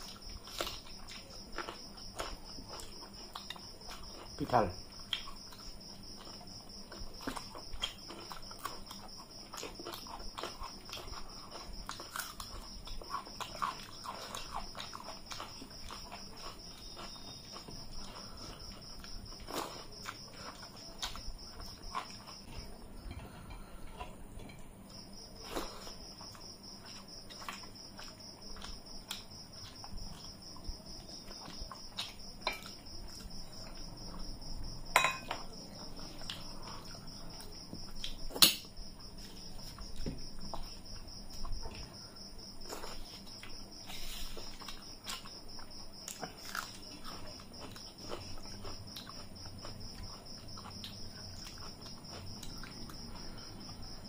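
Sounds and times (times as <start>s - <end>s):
chewing: 0.0s - 34.3s, 35.0s - 38.4s, 39.0s - 54.0s
cricket trilling: 0.0s - 54.0s
metal dishes clinking: 34.9s - 35.5s.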